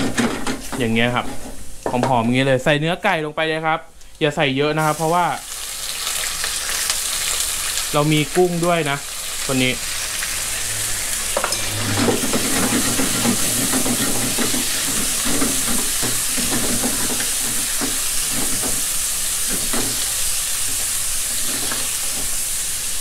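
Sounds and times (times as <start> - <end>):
chicken sizzling in hot fat: 4.1 - 23.0
wooden spatula scraping pan: 10.0 - 18.8.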